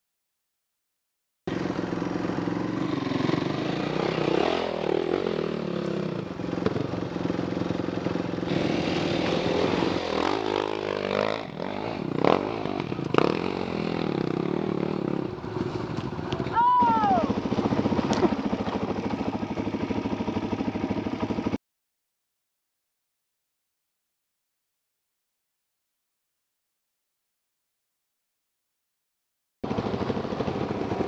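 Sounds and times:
dirt bike engine revving: 1.5 - 7.7, 8.4 - 18.4.

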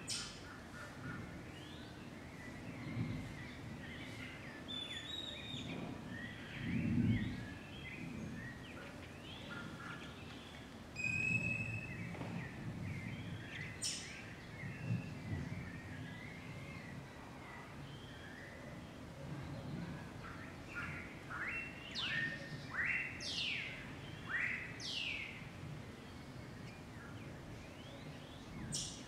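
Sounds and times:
birds chirping and whistling: 4.0 - 8.6, 11.0 - 16.4.

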